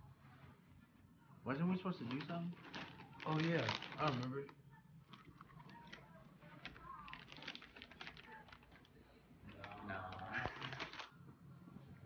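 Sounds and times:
chip bag crinkling: 0:01.9 - 0:04.5, 0:05.1 - 0:11.1.

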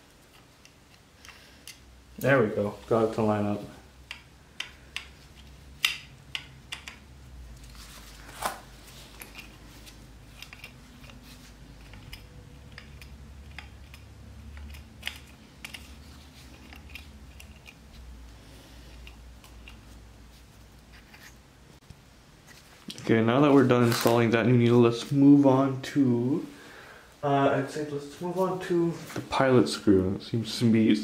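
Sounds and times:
small clicks and taps of parts: 0:00.2 - 0:02.3, 0:04.0 - 0:07.8, 0:09.1 - 0:18.0, 0:18.9 - 0:20.0.

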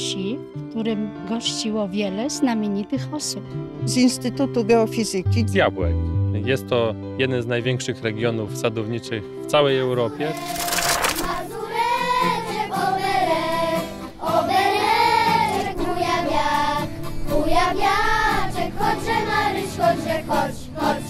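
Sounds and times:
acoustic guitar: 0:10.2 - 0:21.0
children's choir singing: 0:10.2 - 0:21.0
accordion: 0:11.0 - 0:21.0.

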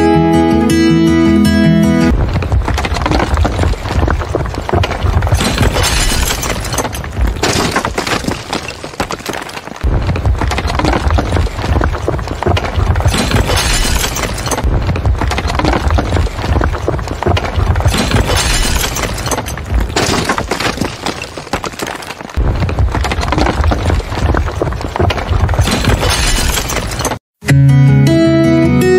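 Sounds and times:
heavy low rumble: 0:02.1 - 0:05.7
debris crashing and shattering: 0:02.1 - 0:27.2.

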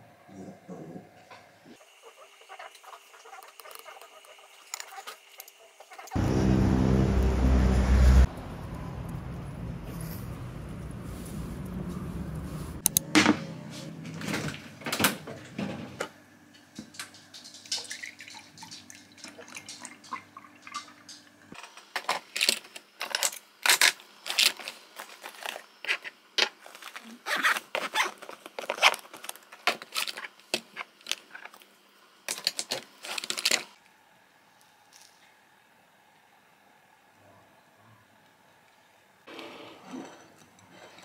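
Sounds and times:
low background rumble: 0:06.2 - 0:12.8.

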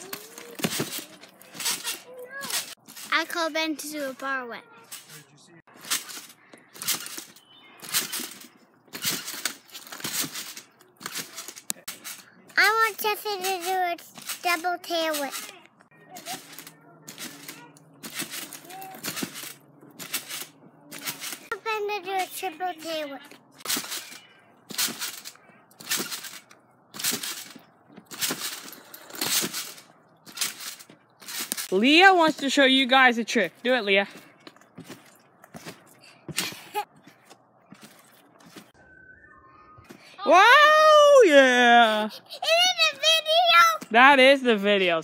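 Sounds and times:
trampoline bounce whoosh: 0:05.8 - 0:11.5, 0:16.4 - 0:21.5, 0:24.8 - 0:31.6.

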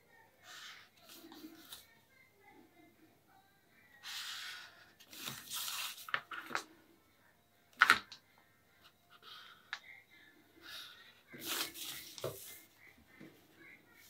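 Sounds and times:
marker scratching on paper: 0:11.4 - 0:13.0.

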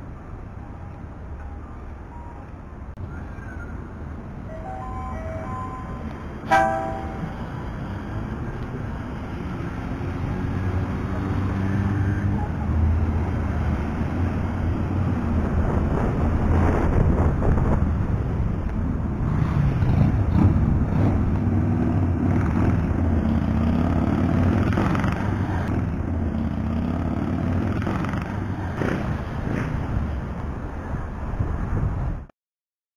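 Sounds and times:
trams rumbling on track: 0:04.2 - 0:09.1.

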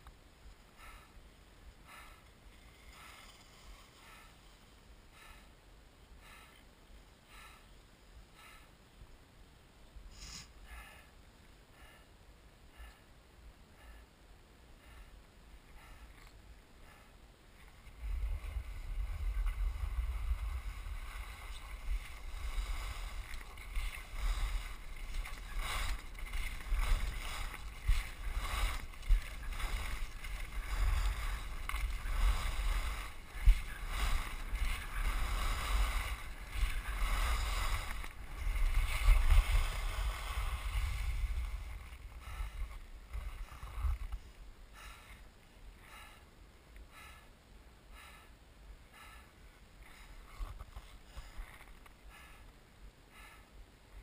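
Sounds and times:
skis carving over snow: 0:01.9 - 0:04.8, 0:17.6 - 0:44.3, 0:49.9 - 0:51.8
wind rumbling on microphone: 0:14.8 - 0:46.1.

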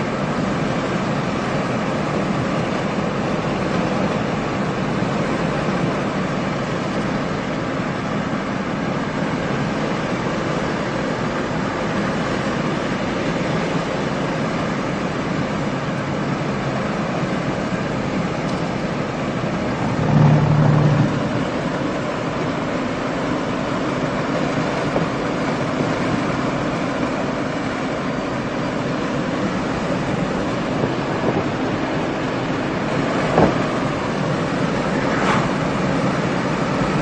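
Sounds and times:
road and engine noise in cabin: 0:00.0 - 0:37.0
brief low hum: 0:19.8 - 0:21.4.

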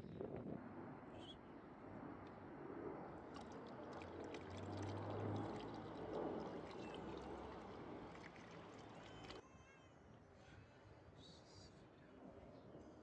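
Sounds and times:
liquid pouring through a funnel: 0:03.4 - 0:09.4.

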